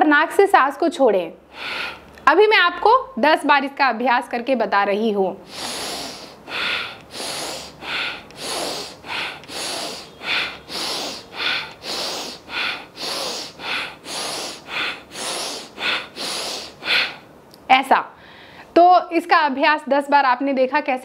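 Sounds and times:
forceful breathing through nose: 0:01.5 - 0:02.1, 0:05.4 - 0:17.3.

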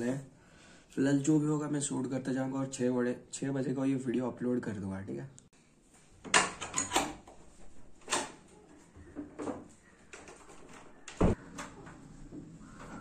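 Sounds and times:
heavy door thump: 0:11.1 - 0:11.4.

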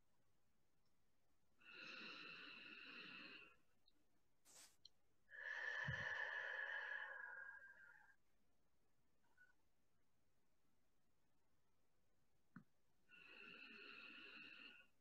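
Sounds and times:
person breathing deeply: 0:04.5 - 0:08.1.

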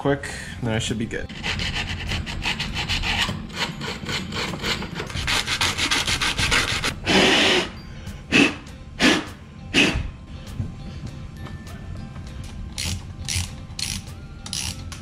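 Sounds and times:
sandpaper rubbing by hand: 0:01.4 - 0:07.8
blowing off dust: 0:07.0 - 0:10.1.

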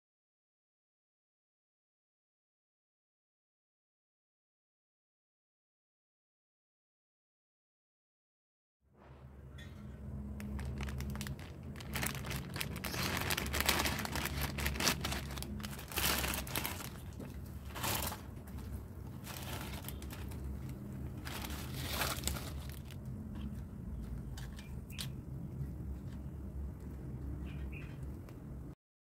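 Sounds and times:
plastic packet crinkling: 0:10.4 - 0:23.0.

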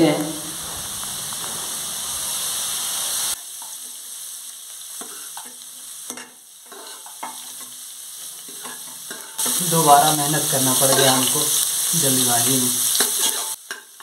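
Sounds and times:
steady rushing noise: 0:00.0 - 0:03.4.

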